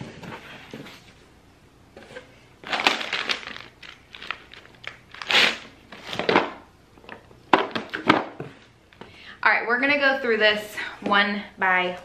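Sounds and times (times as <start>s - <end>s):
plastic packaging crinkling: 2.6s - 6.3s.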